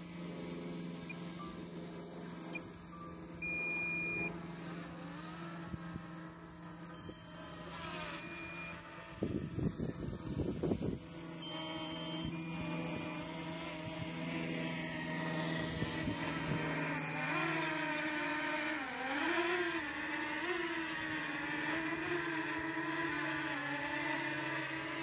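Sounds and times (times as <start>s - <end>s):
engine-like low hum: 0.0s - 25.0s.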